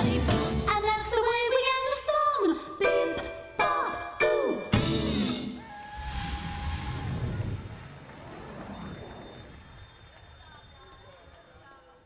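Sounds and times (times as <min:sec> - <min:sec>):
wind chimes ringing: 0:06.0 - 0:12.0.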